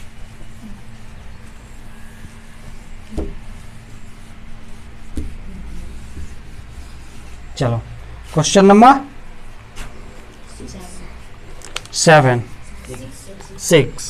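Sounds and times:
hand wiping whiteboard: 0:00.0 - 0:10.6
steady low hum: 0:00.0 - 0:14.0.

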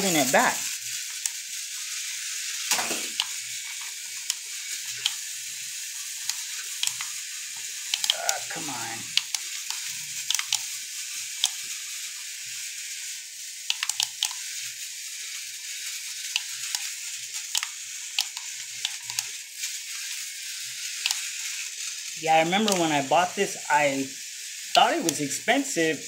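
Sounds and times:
small electric motor hissing: 0:00.0 - 0:26.0
sharp clicks: 0:07.9 - 0:08.4, 0:10.3 - 0:10.6, 0:13.7 - 0:14.4, 0:21.0 - 0:21.2.

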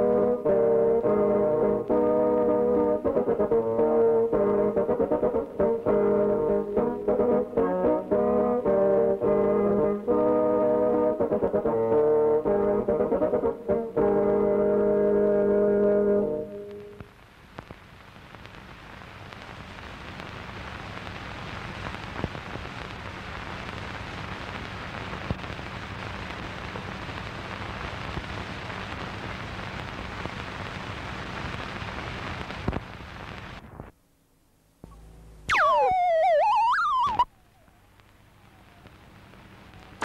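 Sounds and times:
film crackling hiss: 0:00.0 - 0:40.0
sharp pops: 0:34.8 - 0:37.3.

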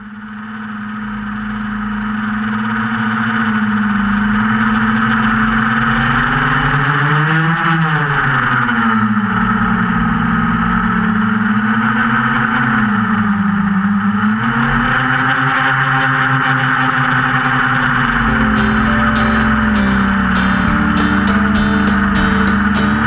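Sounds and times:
quadcopter motors and propellers: 0:00.0 - 0:18.3.

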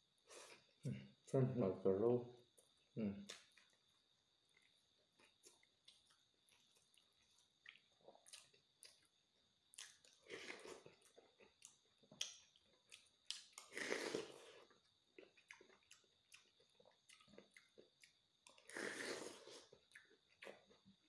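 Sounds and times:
chewing clicks: 0:11.0 - 0:13.7, 0:15.2 - 0:18.7.

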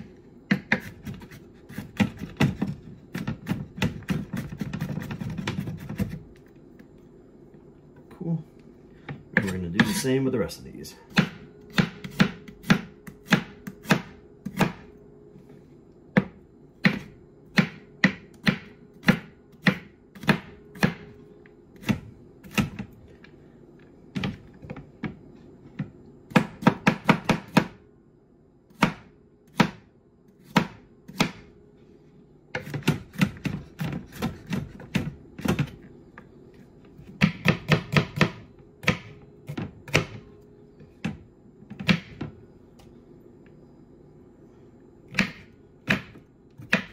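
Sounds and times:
knife chopping on cutting board: 0:00.5 - 0:06.2, 0:11.1 - 0:14.9, 0:16.1 - 0:21.2, 0:26.3 - 0:27.8, 0:28.7 - 0:31.5, 0:32.5 - 0:35.8, 0:37.0 - 0:40.3, 0:45.1 - 0:46.9.

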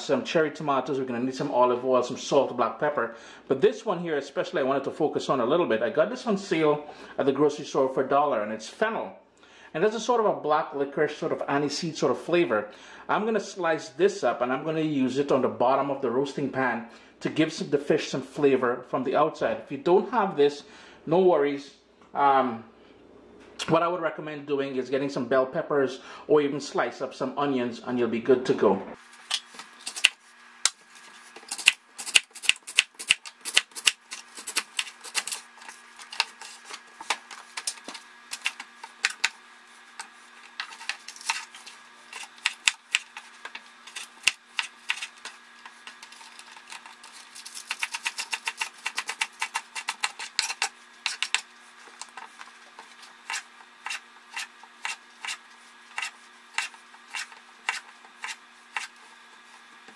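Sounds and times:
knife chopping on wooden board: 0:42.1 - 0:46.8, 0:47.5 - 0:51.5, 0:53.2 - 0:59.0.

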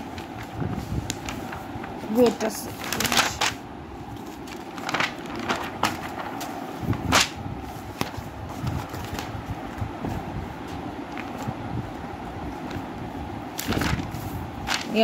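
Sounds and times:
pages being flipped: 0:00.0 - 0:09.8, 0:11.1 - 0:11.6, 0:13.5 - 0:15.0.

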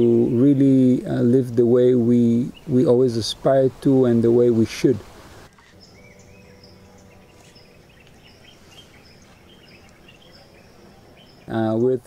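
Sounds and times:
bird chirps: 0:05.5 - 0:12.0.

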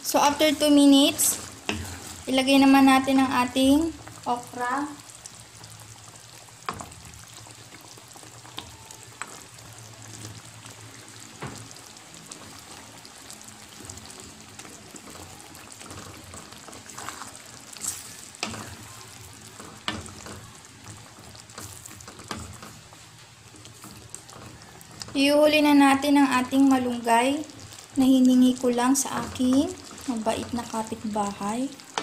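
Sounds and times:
stew bubbling in a wok: 0:00.0 - 0:32.0
spatula scraping a wok: 0:01.1 - 0:02.3, 0:15.9 - 0:20.6.

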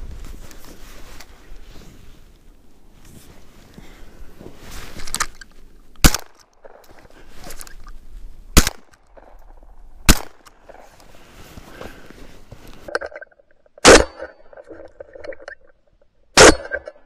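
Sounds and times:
shotgun shots: 0:06.0 - 0:06.8, 0:08.6 - 0:08.9, 0:10.1 - 0:10.4, 0:13.8 - 0:14.3, 0:16.4 - 0:16.9.

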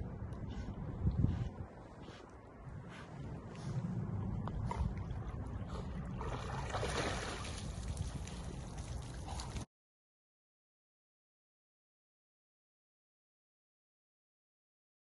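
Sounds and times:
steady low rumble: 0:00.0 - 0:09.6
water splashing and sloshing: 0:04.4 - 0:09.7
dog scrambling out of water: 0:06.2 - 0:08.4.

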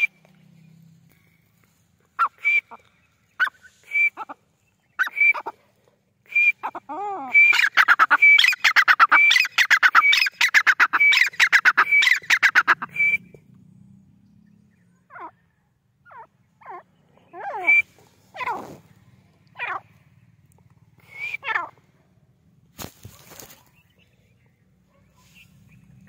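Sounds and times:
francolin calling: 0:06.3 - 0:13.3, 0:14.5 - 0:21.9.

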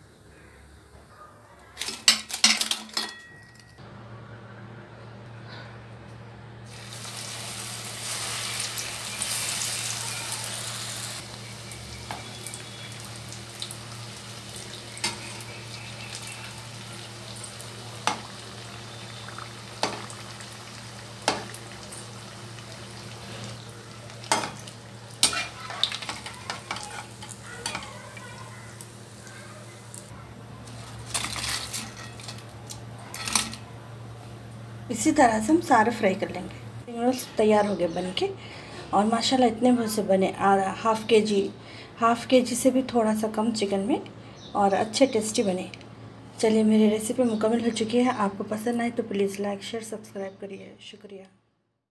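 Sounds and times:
food deep-frying in oil: 0:06.7 - 0:33.6.

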